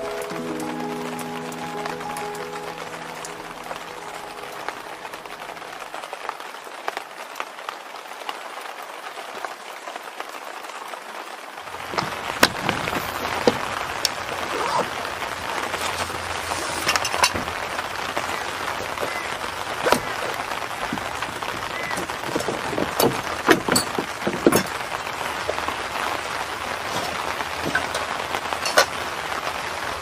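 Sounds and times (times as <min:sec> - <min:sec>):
steady rain: 0:00.0 - 0:30.0
gear handling clicks and knocks: 0:18.8 - 0:25.6.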